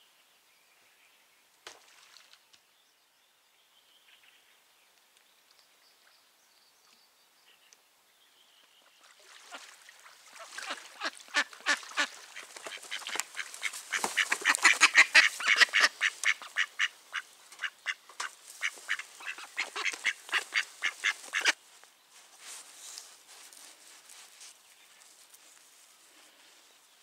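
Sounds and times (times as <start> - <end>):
hen duck quacking loudly: 10.5 - 18.0, 18.6 - 21.6.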